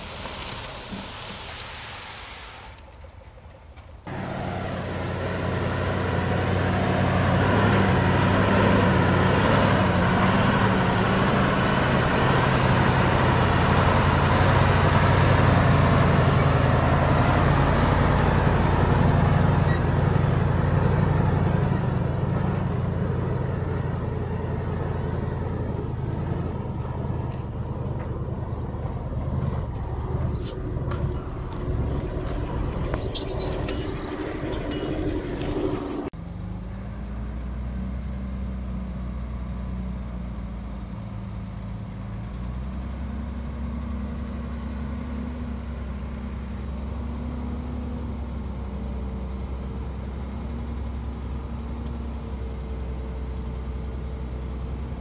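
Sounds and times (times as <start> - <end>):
heavy diesel engine running: 4.1 - 37.3.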